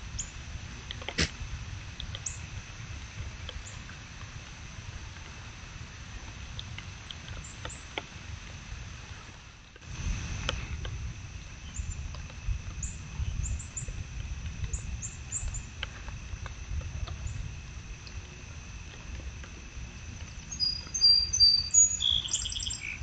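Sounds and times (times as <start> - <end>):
low rumble: 0.0 - 22.0
high chirps: 20.5 - 23.0.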